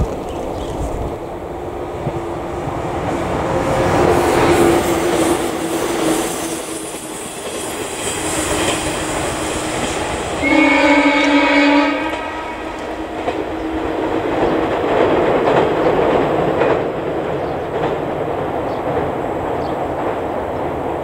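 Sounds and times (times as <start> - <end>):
train rumbling across bridge: 0.0 - 21.0
train horn: 9.6 - 13.3.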